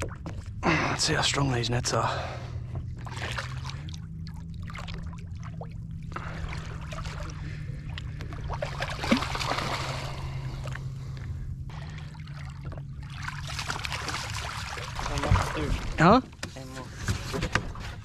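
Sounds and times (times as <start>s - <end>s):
steady low hum: 0.0s - 18.0s
water splashing and dripping: 3.0s - 16.0s.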